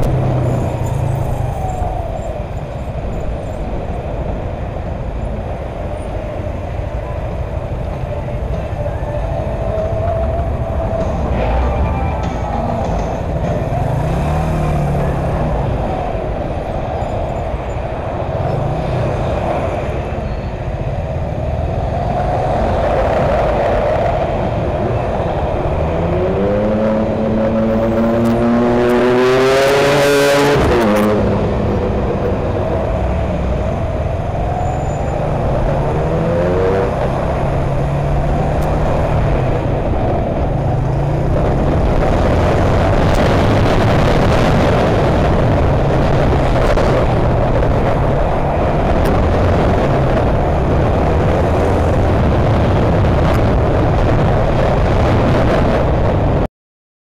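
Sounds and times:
road and wind rush: 0:00.0 - 0:56.5
motorcycle engine revving: 0:09.7 - 0:16.6.

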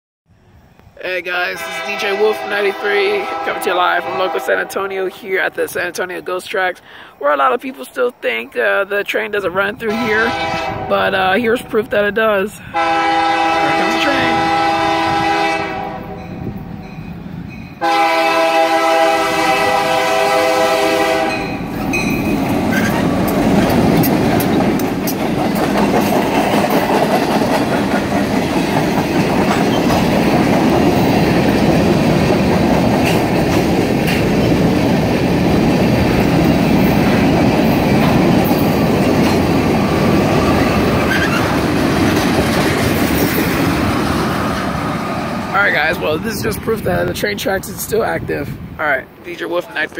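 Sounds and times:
train passing rumble: 0:00.3 - 0:49.9
train horn blast: 0:01.5 - 0:05.0, 0:09.9 - 0:11.2, 0:12.6 - 0:16.4, 0:17.8 - 0:21.7
wheels clattering over rail joints: 0:21.6 - 0:45.2.

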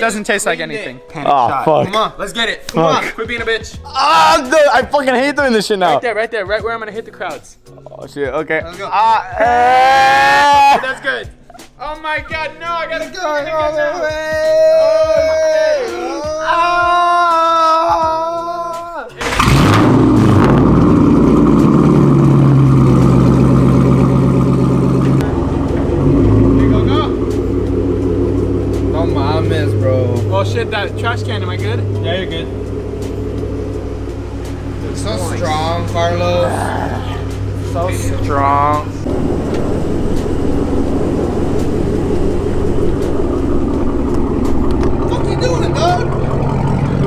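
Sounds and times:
car engine idling loudly: 0:19.2 - 0:47.0
road noise: 0:19.2 - 0:47.0.

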